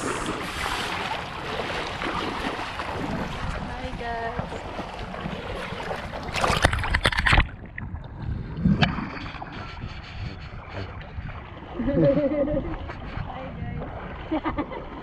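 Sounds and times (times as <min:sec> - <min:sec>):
water sloshing around legs: 0:00.0 - 0:08.2
wind buffeting microphone: 0:00.0 - 0:15.0.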